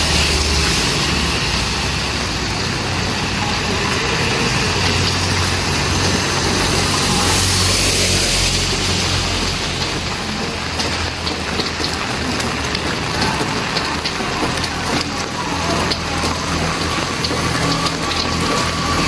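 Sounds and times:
heavy rain on pavement: 0:00.0 - 0:19.0
motorcycle passing: 0:00.0 - 0:19.0
vehicle engine humming: 0:00.0 - 0:19.0.

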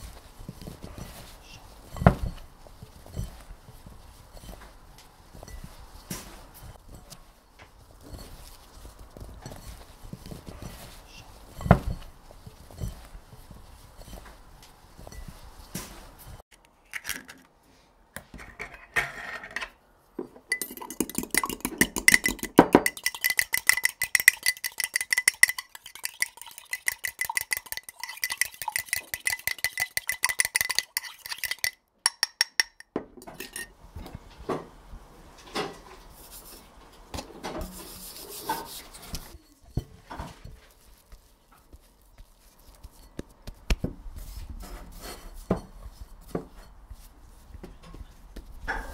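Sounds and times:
knocks and scrapes: 0:00.0 - 0:17.5, 0:18.2 - 0:24.0, 0:32.8 - 0:48.9
utensil clinking in glass bowl: 0:20.4 - 0:33.7.

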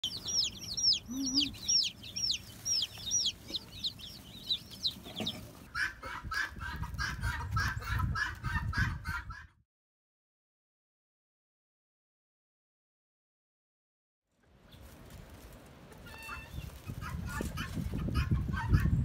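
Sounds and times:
baby chicks peeping: 0:00.0 - 0:09.5, 0:15.9 - 0:19.0.

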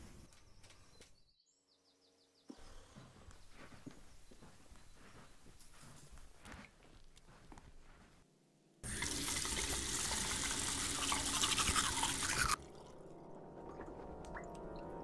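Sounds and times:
toothbrush scrubbing teeth: 0:09.6 - 0:12.7.

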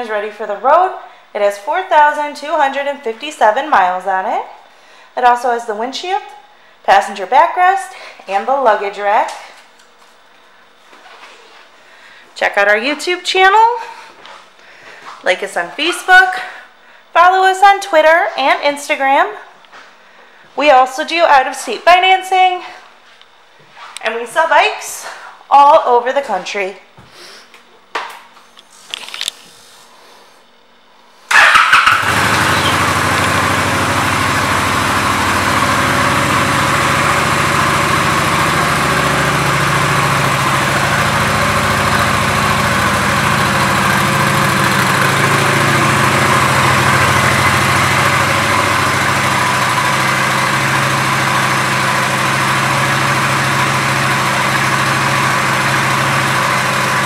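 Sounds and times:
motorcycle engine starting and idling: 0:31.3 - 0:57.0.

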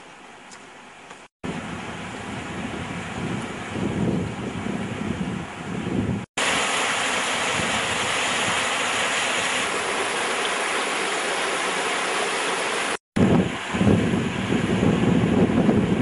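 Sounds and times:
small waterfall rushing: 0:06.4 - 0:15.1.

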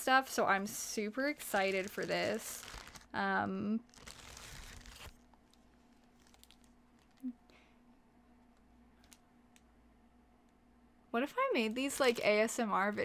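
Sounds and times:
plastic wrapping crinkling: 0:01.2 - 0:03.2, 0:03.8 - 0:07.3, 0:11.6 - 0:12.6.

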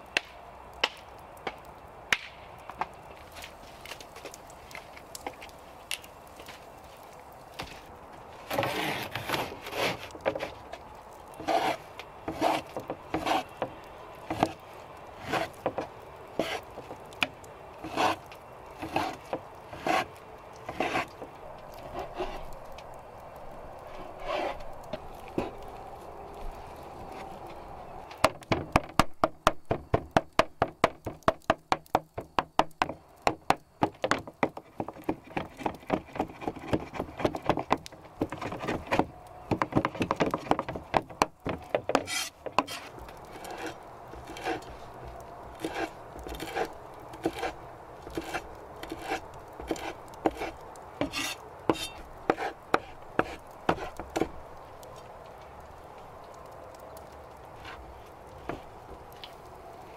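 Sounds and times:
cleaver chopping on wooden board: 0:48.1 - 0:54.3.

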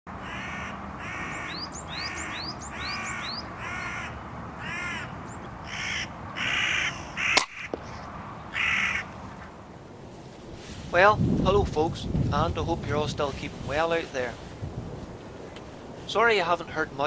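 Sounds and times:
crow cawing: 0:00.1 - 0:09.5
sharp crack: 0:07.2 - 0:08.1.

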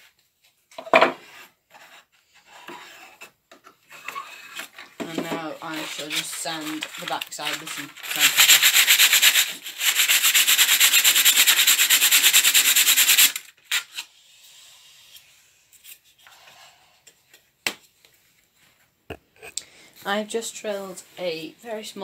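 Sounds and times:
sandpaper rubbing on wood: 0:05.6 - 0:13.4.

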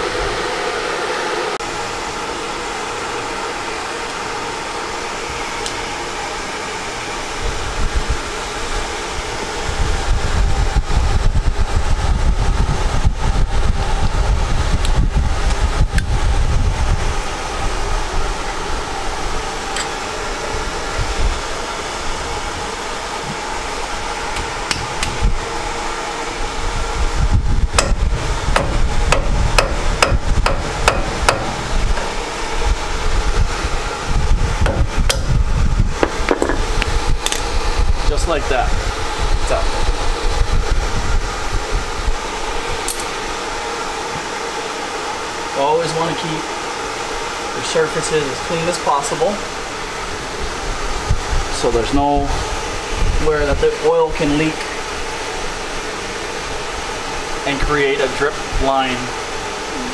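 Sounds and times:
blower whooshing hiss: 0:00.0 - 0:59.9
deep rumble: 0:26.6 - 0:38.1.

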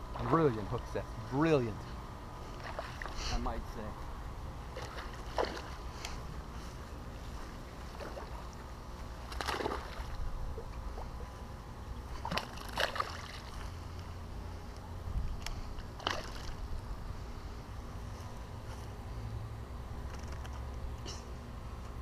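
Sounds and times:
steady low rumble: 0:00.0 - 0:22.0
fish thrashing and splashing: 0:02.5 - 0:03.2, 0:04.7 - 0:05.9, 0:07.8 - 0:11.2, 0:12.1 - 0:13.8, 0:15.9 - 0:16.6.

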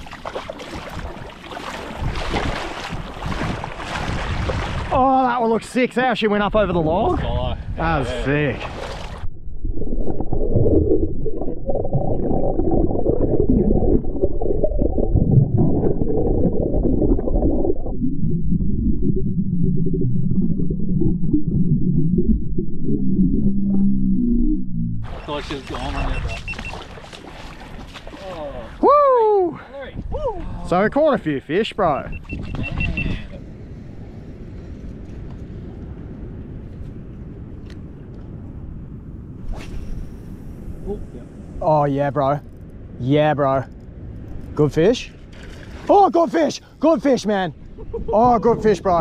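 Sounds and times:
muffled underwater water rumble: 0:00.0 - 0:05.4, 0:06.5 - 0:29.3, 0:31.9 - 0:43.1, 0:47.5 - 0:49.0
wind buffeting microphone: 0:00.0 - 0:05.6, 0:25.0 - 0:45.9, 0:47.5 - 0:49.0.

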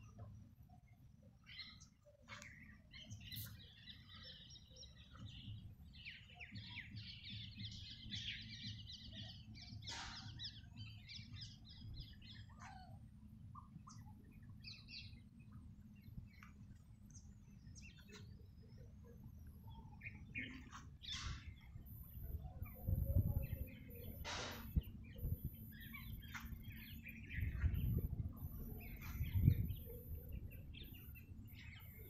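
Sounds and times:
small birds chirping: 0:00.0 - 0:32.0
low steady rumble: 0:13.2 - 0:32.0.

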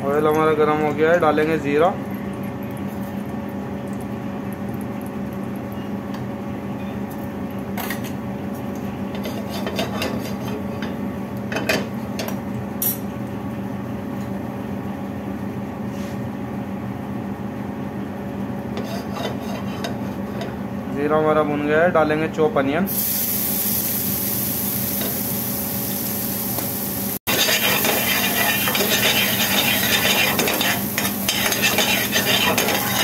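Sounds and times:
seeds frying in hot oil: 0:22.9 - 0:33.0.

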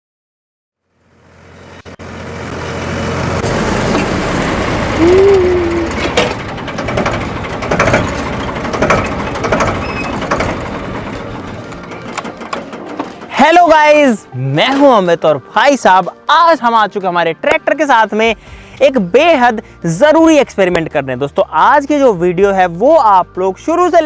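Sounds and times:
tractor engine droning: 0:00.8 - 0:14.9
rising and dipping tone: 0:03.3 - 0:06.1
sharp knocks: 0:06.0 - 0:13.3.

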